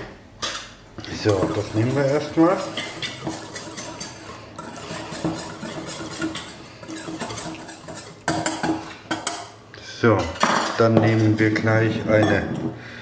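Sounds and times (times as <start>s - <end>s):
utensil scraping metal bowl: 1.1s - 9.6s, 11.0s - 12.8s.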